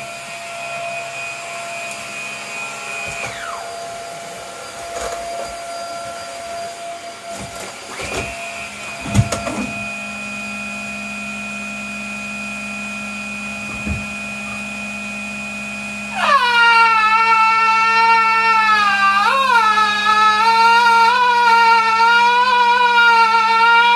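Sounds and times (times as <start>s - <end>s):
vacuum cleaner motor whine: 0.0s - 23.9s
thumps: 13.6s - 14.6s.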